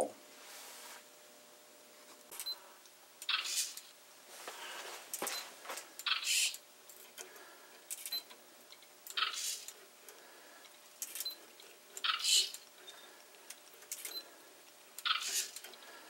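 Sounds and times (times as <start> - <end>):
servos whirring: 3.2 - 3.9, 6.0 - 16.0.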